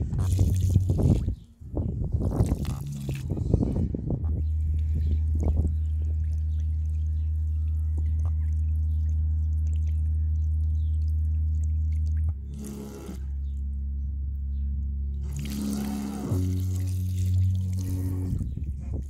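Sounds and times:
water splashing and dripping: 0.0s - 1.4s, 2.2s - 3.4s, 4.3s - 12.4s, 15.2s - 19.0s
deep bass note from speaker: 0.0s - 19.0s.

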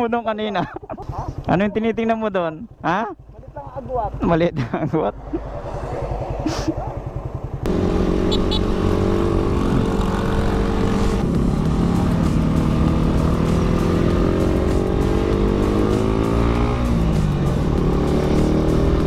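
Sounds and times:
motorcycle engine pulling uphill: 6.2s - 19.0s.

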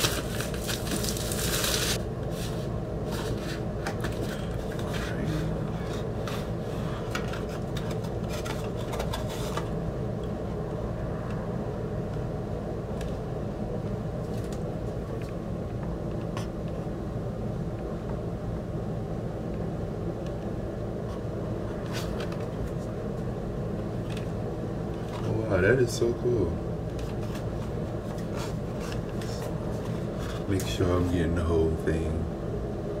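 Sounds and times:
cardboard box rustling: 0.0s - 5.2s
steady low hum: 0.0s - 33.0s.

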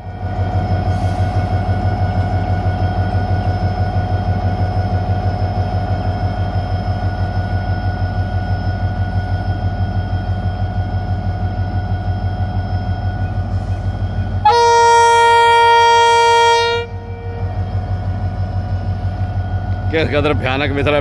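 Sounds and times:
locomotive engine throbbing: 0.0s - 21.0s
locomotive air horn blast: 14.4s - 17.5s.

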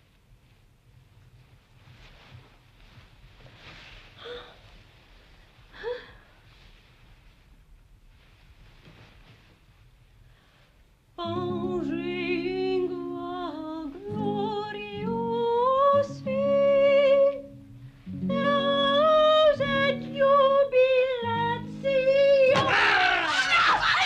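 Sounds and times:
woman singing: 11.2s - 22.7s.

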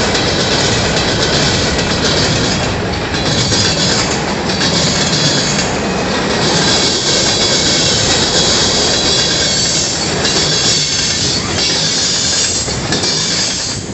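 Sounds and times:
train wheels rumbling on rail: 0.0s - 13.9s
high-pitched wheel squeal: 3.2s - 13.9s.

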